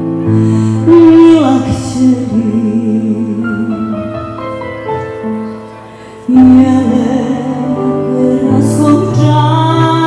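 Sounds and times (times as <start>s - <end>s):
woman singing with vibrato: 0.6s - 4.2s, 6.3s - 10.0s.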